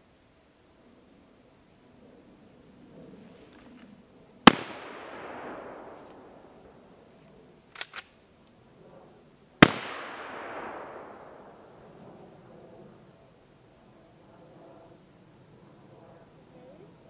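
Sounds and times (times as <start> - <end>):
rifle shots with echo: 4.4 - 6.6, 9.6 - 11.8.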